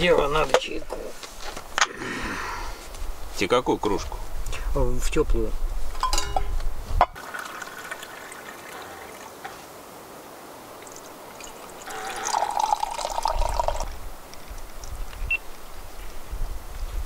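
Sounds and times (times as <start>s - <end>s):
tea pouring into mug: 7.2s - 9.4s, 10.8s - 14.0s.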